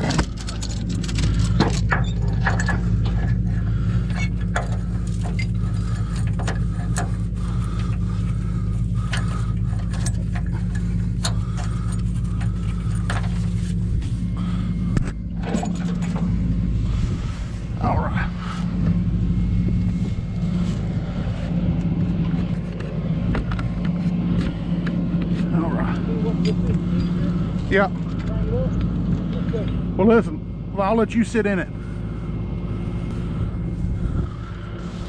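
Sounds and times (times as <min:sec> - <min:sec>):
metallic clinks and knocks: 0:00.0 - 0:03.5
diesel truck engine running: 0:00.0 - 0:35.0.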